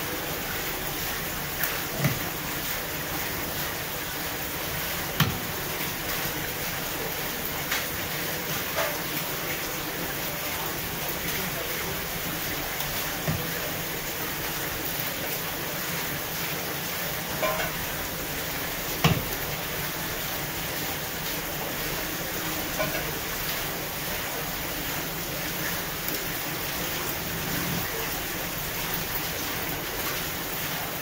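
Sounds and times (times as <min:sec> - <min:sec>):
knocks on wet wooden board: 0:05.2 - 0:05.5, 0:13.2 - 0:13.5, 0:19.0 - 0:19.4.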